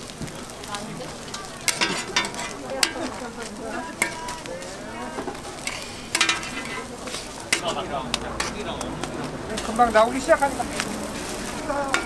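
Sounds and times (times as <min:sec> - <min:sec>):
frying sizzle: 0:00.0 - 0:12.0
metal spatulas scraping on griddle: 0:01.3 - 0:07.8, 0:08.4 - 0:08.6, 0:09.5 - 0:12.0.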